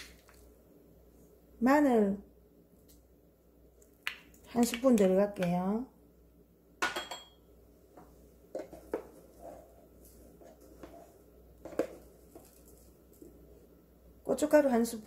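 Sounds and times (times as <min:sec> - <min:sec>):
kitchenware knocks and clinks: 0:06.8 - 0:07.4
wooden spoon clinking glass bowl: 0:06.8 - 0:07.4.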